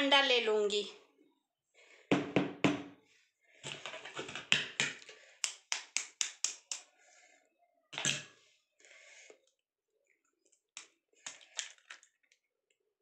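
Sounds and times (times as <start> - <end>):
utensil tapping eggshell: 5.4 - 6.8.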